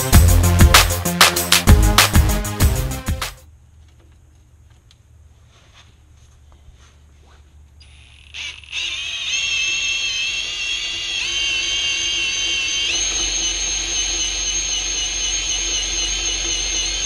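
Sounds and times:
cordless drill motor whining: 0:07.8 - 0:17.0.

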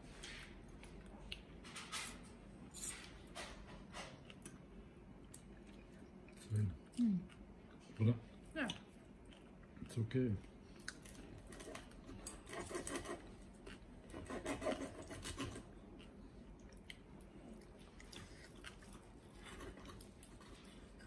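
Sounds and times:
knife sawing through crackling: 0:12.5 - 0:13.2, 0:14.1 - 0:15.6.

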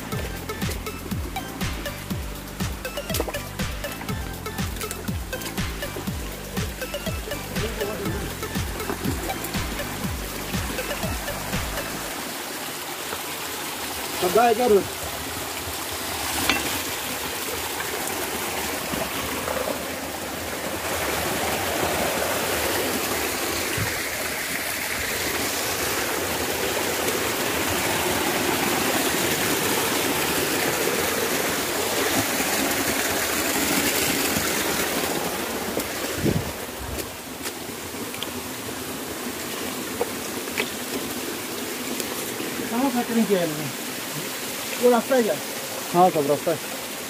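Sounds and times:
stream rushing and splashing: 0:00.0 - 0:47.0.

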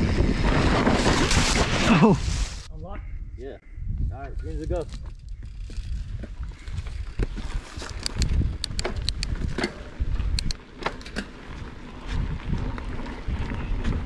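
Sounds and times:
bike tyres rumbling on dirt: 0:00.0 - 0:02.7, 0:04.6 - 0:14.0
bike clicks and rattles: 0:04.3 - 0:14.0.

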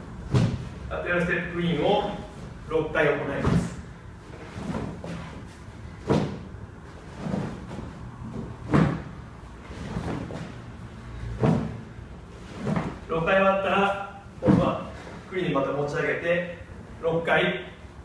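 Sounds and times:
heavy sandbag thuds: 0:00.2 - 0:00.8, 0:06.0 - 0:06.5, 0:08.4 - 0:09.2, 0:11.3 - 0:11.9, 0:14.4 - 0:15.0
soft knocks and shuffles: 0:02.0 - 0:15.4.

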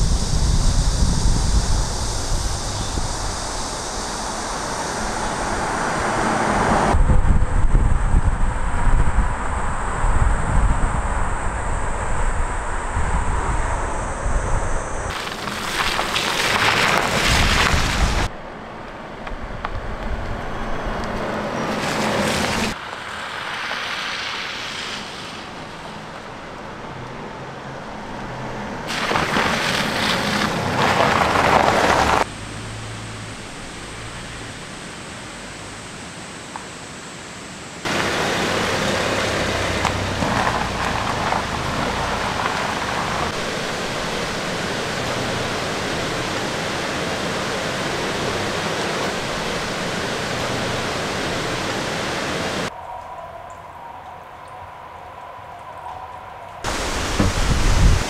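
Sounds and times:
stream water rushing: 0:15.1 - 0:18.3, 0:28.9 - 0:35.9, 0:37.8 - 0:52.7, 0:56.6 - 0:58.0.

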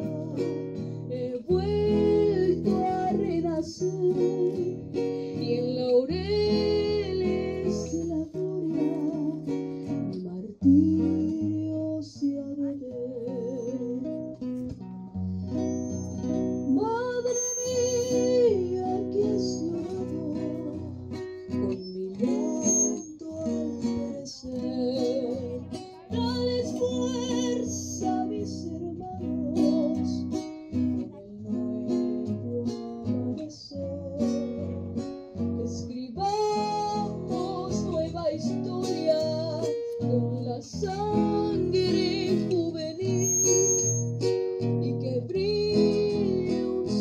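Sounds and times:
boy singing into microphone: 0:00.0 - 0:14.3, 0:16.6 - 0:30.4, 0:31.0 - 0:44.0, 0:44.7 - 0:47.0
strummed acoustic guitar: 0:00.0 - 0:47.0.

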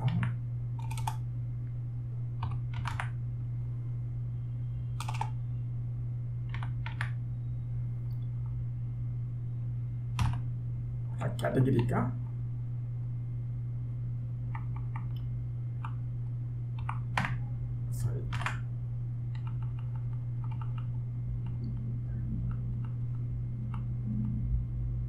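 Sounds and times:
computer keyboard keystrokes: 0:00.0 - 0:01.2, 0:02.4 - 0:03.2, 0:05.0 - 0:05.4, 0:06.5 - 0:07.2, 0:10.2 - 0:10.5, 0:14.5 - 0:15.2, 0:16.8 - 0:17.4, 0:18.3 - 0:18.6, 0:19.3 - 0:21.8
steady low hum: 0:00.0 - 0:25.0.

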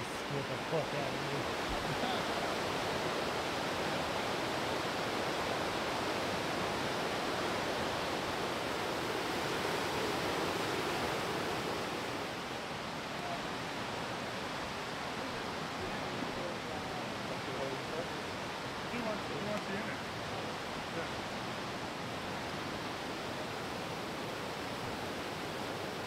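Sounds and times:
fast-flowing water rushing: 0:00.0 - 0:26.0.

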